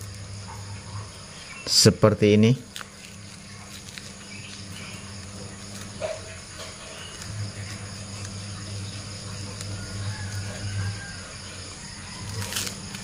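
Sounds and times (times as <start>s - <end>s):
low hum: 0.0s - 1.7s, 2.6s - 13.0s
crickets chirring: 0.0s - 13.0s
bread crumbling in stone mortar: 2.6s - 11.4s, 12.1s - 13.0s.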